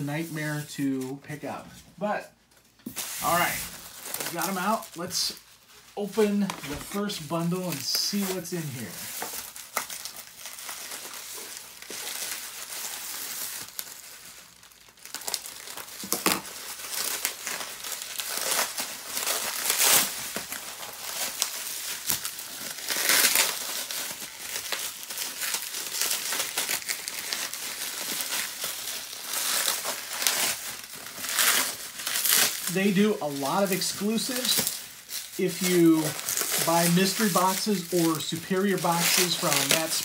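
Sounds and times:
bubble wrap crinkling: 0.0 - 40.0.

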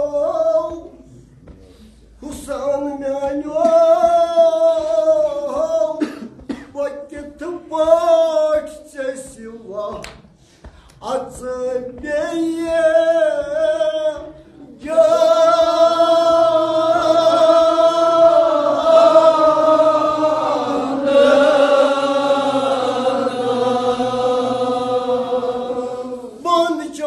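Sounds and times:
men chanting unaccompanied: 2.2 - 6.1, 11.0 - 27.0.

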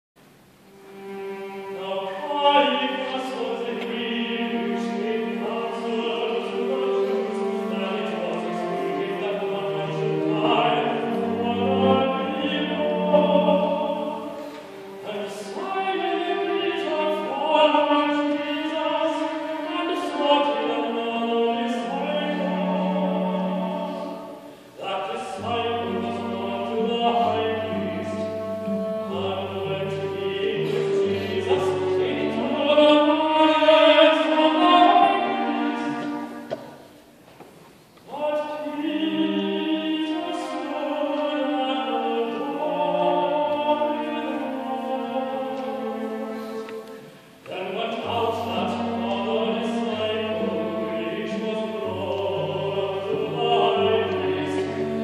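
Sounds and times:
choir singing sustained chords: 0.6 - 37.1, 38.1 - 55.0
instrumental accompaniment: 25.4 - 33.6.

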